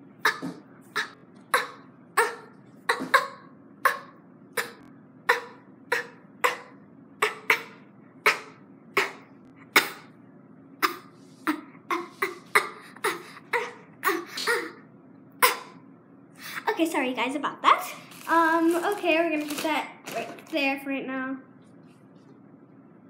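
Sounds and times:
girl coughing: 0.2 - 10.2, 10.8 - 14.8, 15.4 - 15.8.

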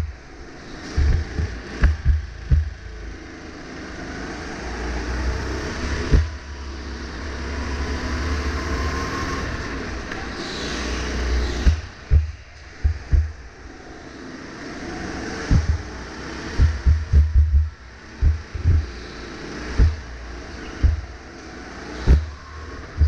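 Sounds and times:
low thumps on microphone: 1.0 - 2.9, 6.1 - 6.4, 11.6 - 13.5, 15.5 - 15.9, 16.6 - 18.9, 19.7 - 20.1, 20.7 - 21.2, 22.1 - 22.4.

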